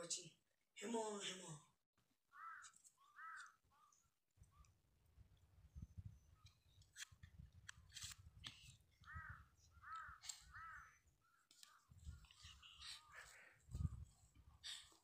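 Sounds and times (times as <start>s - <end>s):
crows cawing: 2.3s - 4.0s, 9.0s - 13.6s
wind rumble on microphone: 5.1s - 6.5s, 13.7s - 14.3s.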